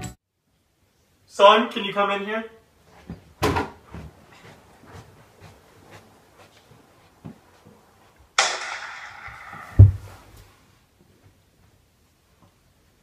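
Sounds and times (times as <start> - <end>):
sudden bang: 8.4 - 10.3
body thumping on floor: 9.7 - 10.2.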